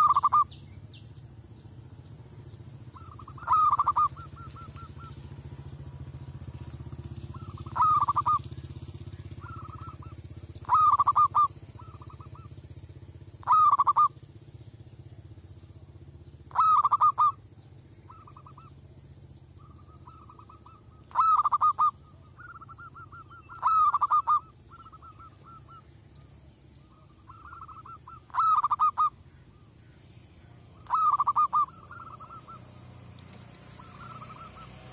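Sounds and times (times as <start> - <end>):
dove cooing: 0.0 - 0.6, 2.8 - 5.3, 7.2 - 12.7, 13.3 - 14.2, 16.5 - 17.4, 18.1 - 18.8, 19.6 - 26.3, 26.9 - 29.7, 30.4 - 34.9.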